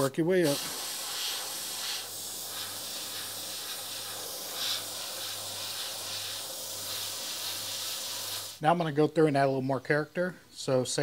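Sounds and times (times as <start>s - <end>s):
airbrush hissing: 0.0s - 8.6s.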